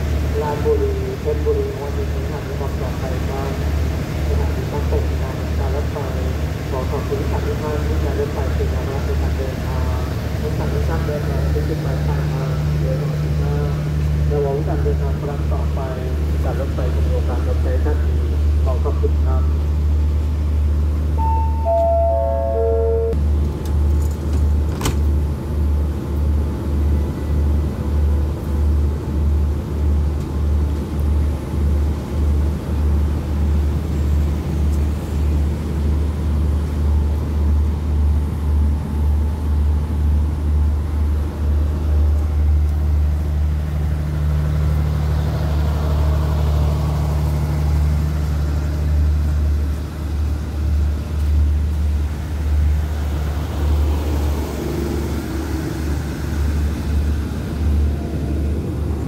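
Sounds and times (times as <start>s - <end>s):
diesel train engine rumbling: 0.0s - 59.0s
falling four-note chime: 21.2s - 23.2s.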